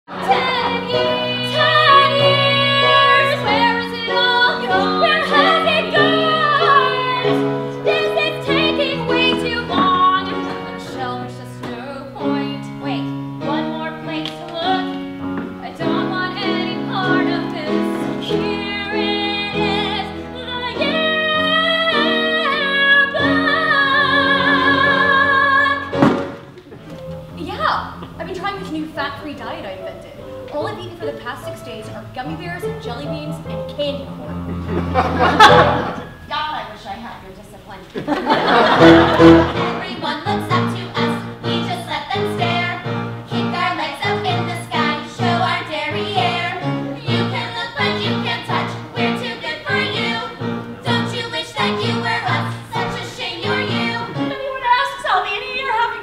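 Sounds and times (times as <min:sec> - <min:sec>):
woman singing: 0:00.1 - 0:26.0, 0:39.6 - 0:56.0
instrumental accompaniment: 0:00.1 - 0:37.2, 0:38.1 - 0:56.0.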